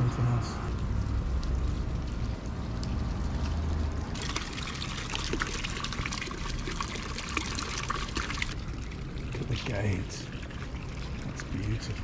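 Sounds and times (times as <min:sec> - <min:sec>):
low rumble of wind: 0:00.0 - 0:12.0
fountain water splashing: 0:04.0 - 0:12.0.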